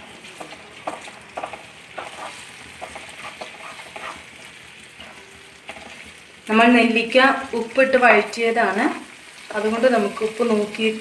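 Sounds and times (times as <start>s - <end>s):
spatula scraping a pan: 0.0s - 6.2s
gravy sizzling in a pan: 0.0s - 11.0s.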